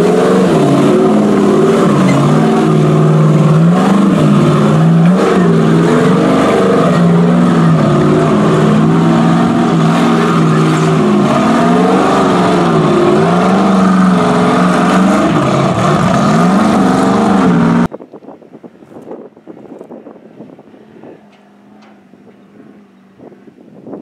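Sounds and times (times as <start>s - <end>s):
race car engine revving: 0.0s - 17.9s.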